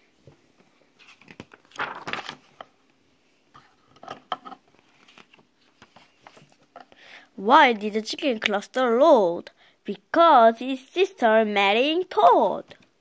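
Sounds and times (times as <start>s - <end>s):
book pages rustling: 0.2s - 2.7s, 4.6s - 6.8s.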